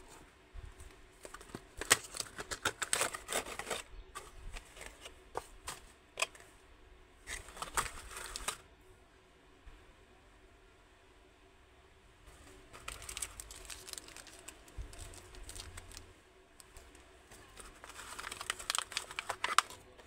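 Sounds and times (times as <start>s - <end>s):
cardboard and plastic packaging crinkling: 0.8s - 6.4s, 7.2s - 8.6s, 12.4s - 20.0s.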